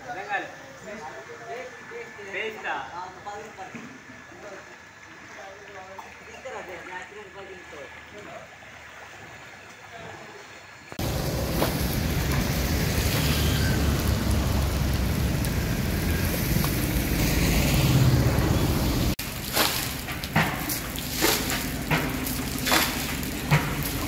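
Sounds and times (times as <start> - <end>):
steady rushing water: 0.0 - 24.0
short sharp splashes: 19.0 - 24.0
water poured from a bucket: 19.1 - 24.0.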